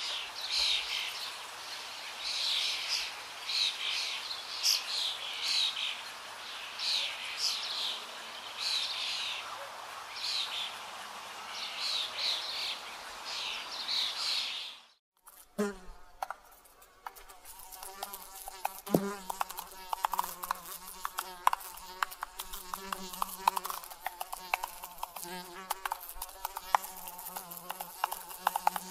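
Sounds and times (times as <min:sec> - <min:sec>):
buzzing: 0:17.1 - 0:28.9.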